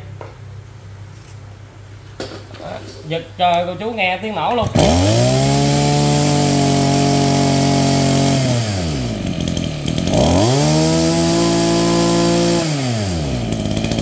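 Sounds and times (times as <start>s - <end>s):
hedge trimmer engine revving: 4.4s - 14.0s.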